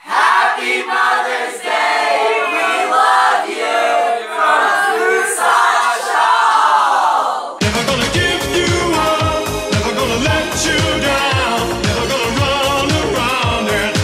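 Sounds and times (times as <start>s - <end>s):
group singing in unison: 0.0s - 14.0s
pop music: 7.6s - 14.0s.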